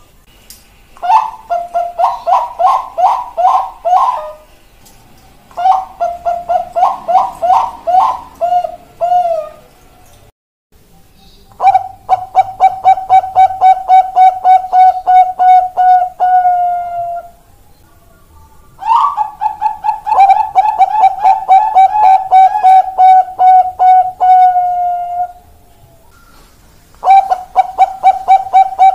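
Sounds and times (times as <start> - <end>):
dove cooing staccato: 1.0 - 4.5, 5.5 - 9.7, 11.6 - 17.4, 18.8 - 25.4, 27.0 - 28.9.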